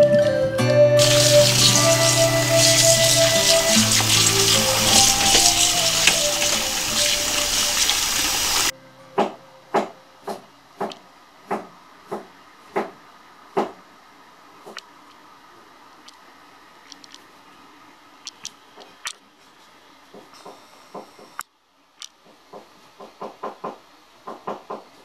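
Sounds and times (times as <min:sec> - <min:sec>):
background music: 0:00.0 - 0:09.2
tap water running over chicken: 0:01.0 - 0:08.7.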